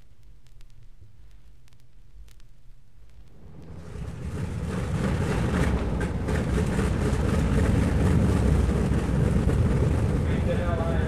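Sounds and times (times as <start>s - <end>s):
airliner engines rumbling: 3.4s - 11.0s.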